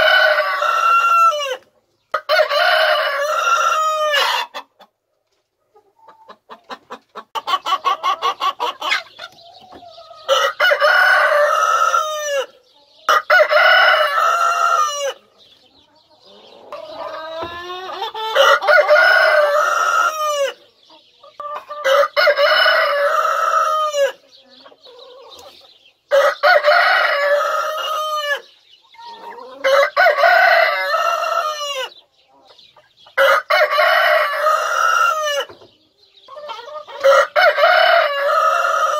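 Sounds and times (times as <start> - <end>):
chicken clucks: 0.0 - 38.9
rooster crowing: 2.2 - 4.5, 18.3 - 20.6, 26.1 - 28.4, 33.2 - 35.5, 37.0 - 38.9.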